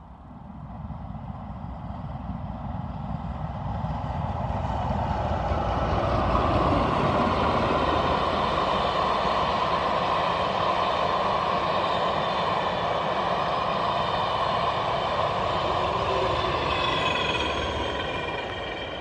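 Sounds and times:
train coaches rolling on rails: 3.5 - 19.0
thin high squeal: 15.9 - 19.0.

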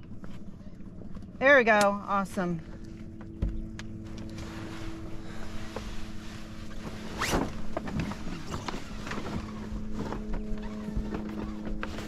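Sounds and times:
sailcloth rustling and clicking: 3.8 - 12.0
sail batten scraping: 4.0 - 12.0.

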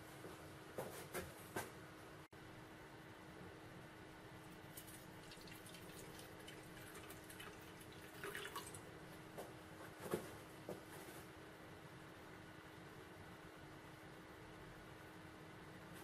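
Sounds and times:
water dripping: 4.7 - 8.8
water trickling into metal dish: 4.8 - 8.8.

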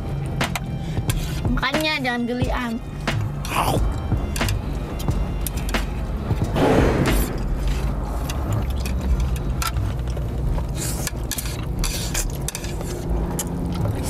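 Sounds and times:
noodles being slurped: 7.6 - 14.0.

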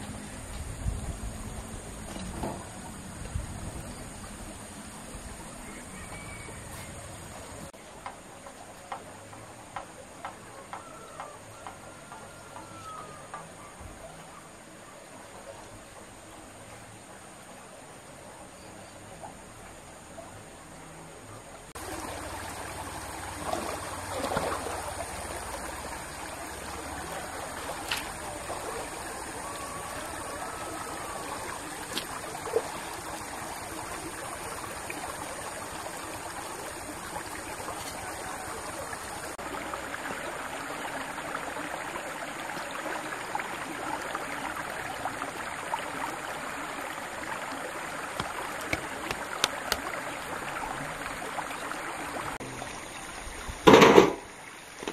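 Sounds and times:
clay bricks knocking: 48.2 - 49.9.

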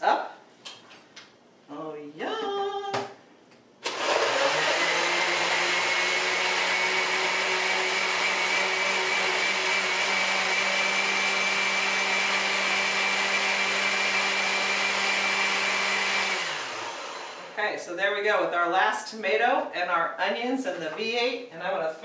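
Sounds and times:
blender motor humming and whining: 3.8 - 17.6.

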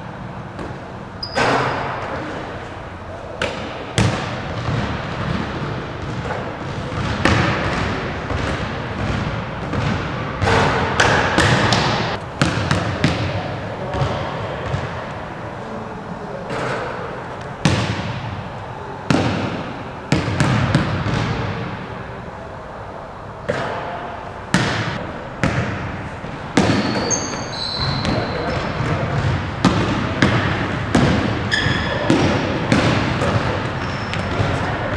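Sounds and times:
sneaker squeaks: 0.6 - 2.6, 26.6 - 29.8, 31.4 - 34.9
basketball bouncing on hardwood floor: 4.0 - 14.9, 17.6 - 18.2, 19.1 - 21.5, 24.5 - 25.8, 26.6 - 34.6.

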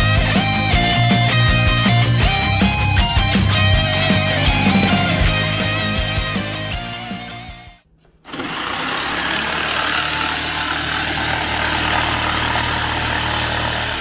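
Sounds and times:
background music: 0.0 - 7.9
electric saw cutting wood: 8.2 - 14.0.

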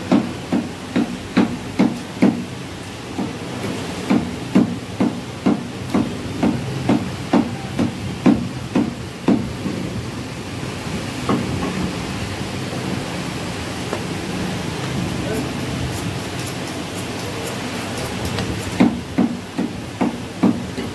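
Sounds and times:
cleaver chopping bone on wood: 4.1 - 9.4, 18.3 - 20.9.

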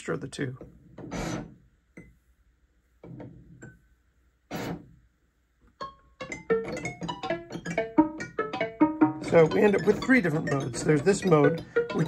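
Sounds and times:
plucked synthesizer notes: 5.8 - 12.0.

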